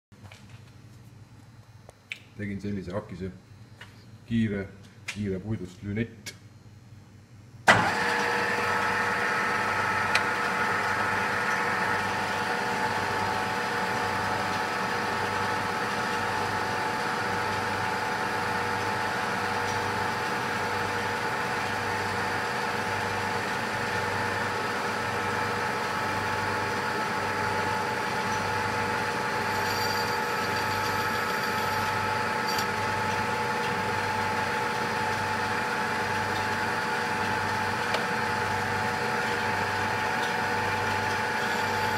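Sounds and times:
metal lathe whining: 26.6s - 33.3s, 40.4s - 41.9s.

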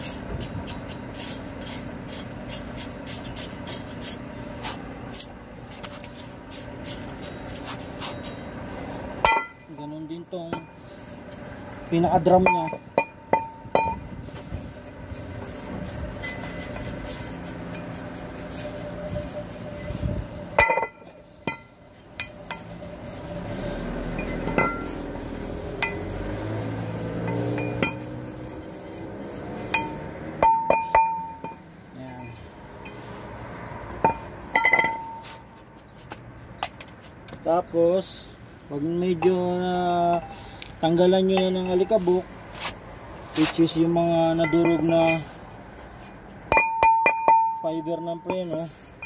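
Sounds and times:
brush scrubbing metal drum: 0.0s - 31.8s.

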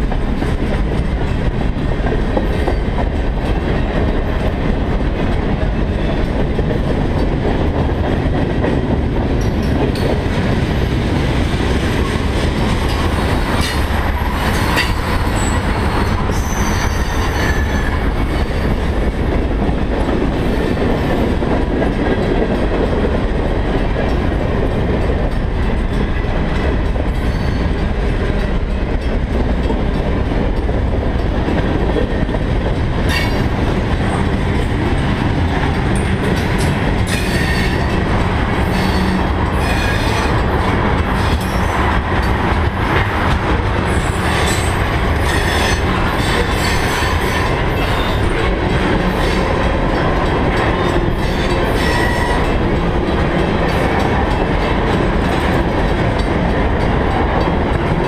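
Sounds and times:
freight train rumbling past: 0.0s - 58.0s.

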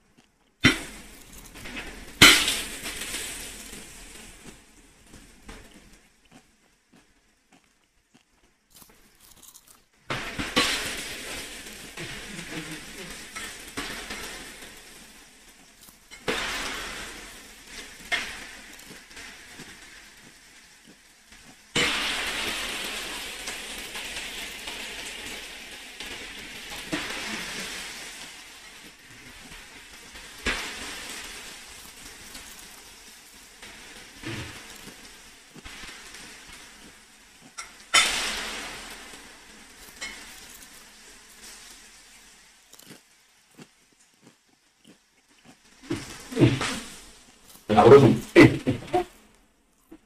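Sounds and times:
food sizzling in hot oil: 0.6s - 6.6s, 8.8s - 43.8s, 45.6s - 49.2s.

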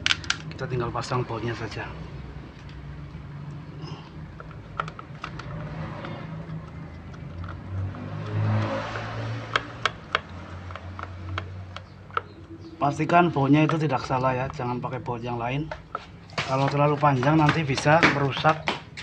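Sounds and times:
clicks and taps of bolts and fan: 4.4s - 12.5s, 15.7s - 19.0s.

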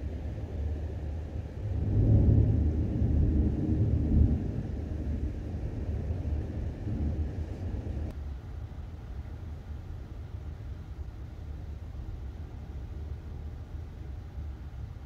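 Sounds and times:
rolling thunder: 0.0s - 8.1s.

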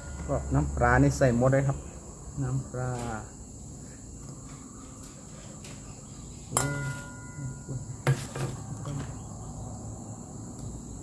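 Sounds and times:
insects trilling: 0.0s - 11.0s
kitchenware clanking: 6.5s - 9.2s.

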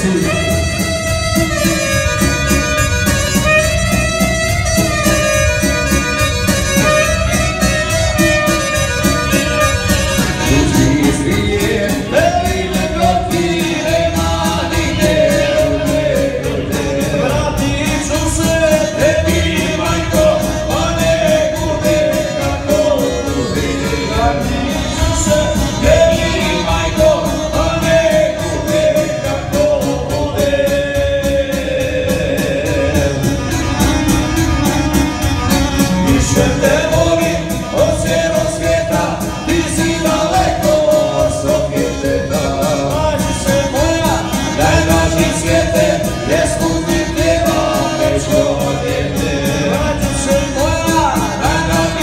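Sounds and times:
violin: 0.0s - 29.6s
keyboard: 0.0s - 52.0s
live band playing: 0.0s - 52.0s
person singing: 10.3s - 33.6s, 36.1s - 52.0s.

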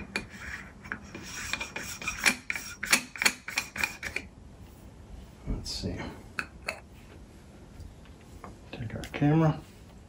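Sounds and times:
metal threads rasping and clicking: 0.0s - 4.3s.

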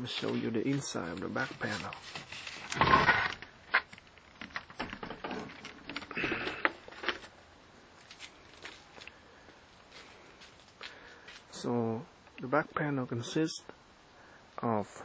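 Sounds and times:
handling rustle: 0.0s - 11.6s.

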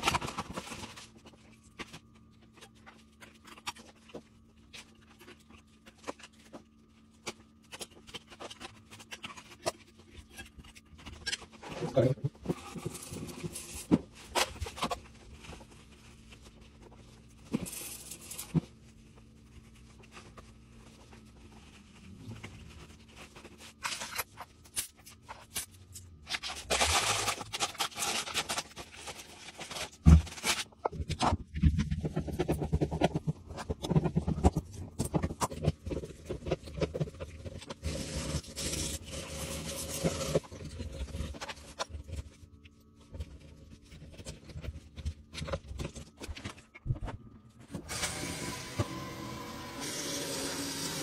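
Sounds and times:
plastic wrapping crinkling: 18.4s - 37.8s.

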